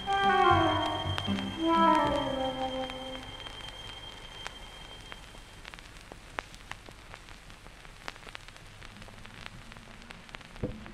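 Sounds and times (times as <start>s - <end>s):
faint held musical note: 0.0s - 5.4s
record surface hiss and crackles: 0.0s - 10.9s.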